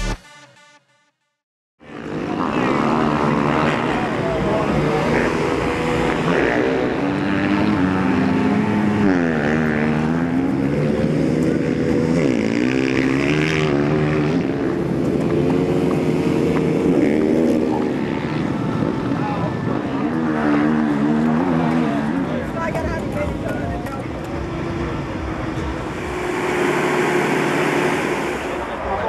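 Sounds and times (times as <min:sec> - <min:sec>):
motocross bike engines revving: 0:01.8 - 0:29.0.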